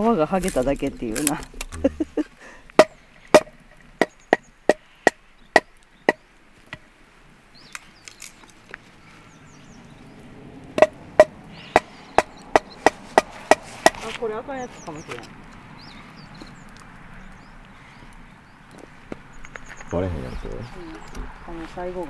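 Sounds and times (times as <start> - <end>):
hatchet chopping wood: 2.8 - 6.2, 10.8 - 14.1.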